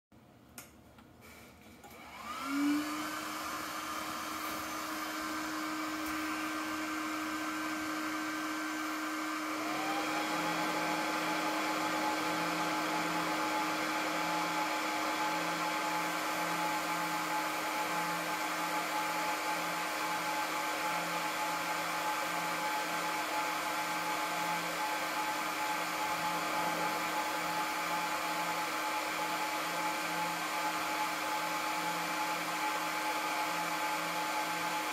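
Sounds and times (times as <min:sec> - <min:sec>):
cooling fans whining and whirring: 0:01.9 - 0:21.6.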